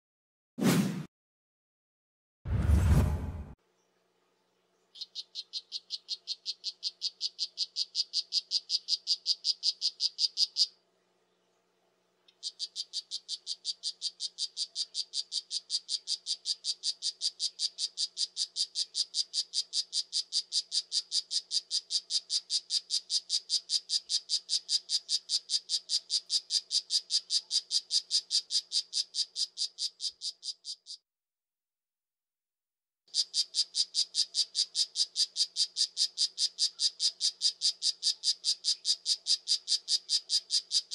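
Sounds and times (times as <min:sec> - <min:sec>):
frog rapid high chirps: 0:05.0 - 0:10.8, 0:12.3 - 0:31.0, 0:33.1 - 0:40.9.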